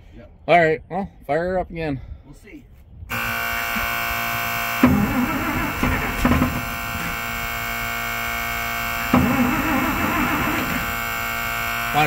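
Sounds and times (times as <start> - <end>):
electrical buzzing tone: 3.1 - 12.0
starter cranking truck engine: 3.1 - 12.0.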